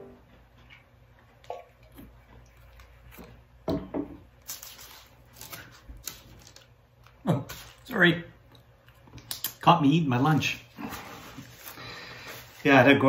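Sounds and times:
man biting and chewing: 0.6 - 3.6, 4.3 - 9.6.

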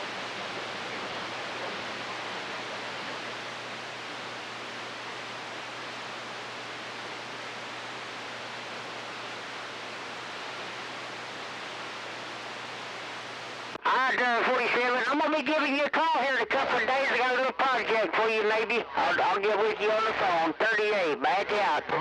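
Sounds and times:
faint low hum: 0.0 - 15.0
radio static hiss: 0.0 - 22.0.

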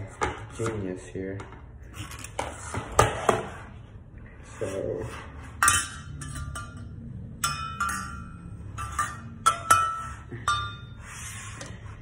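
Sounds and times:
metal exhaust parts clinking: 5.5 - 11.1.

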